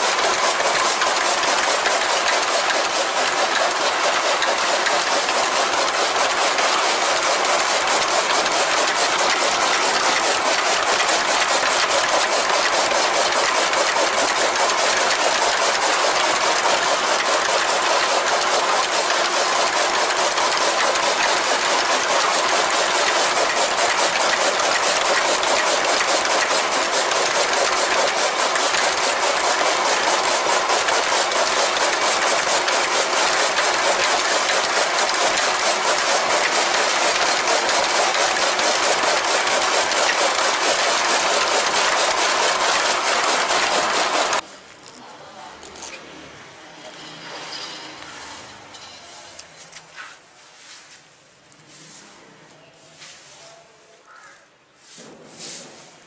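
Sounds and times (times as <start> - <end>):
chaff cutter blades clattering: 0.0 - 44.4.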